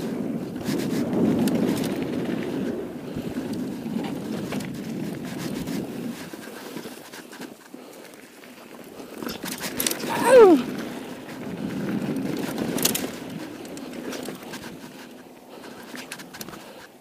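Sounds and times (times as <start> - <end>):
wind on microphone: 0.0 - 7.0, 9.3 - 15.2
bike tyres rolling on dirt: 0.0 - 17.0
bike rattling clicks: 0.2 - 17.0.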